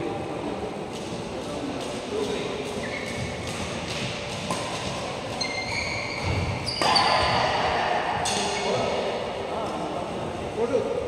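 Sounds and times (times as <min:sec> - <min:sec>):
racket hitting shuttlecock: 0:00.9 - 0:08.6
shoes squeaking on court: 0:02.2 - 0:07.6.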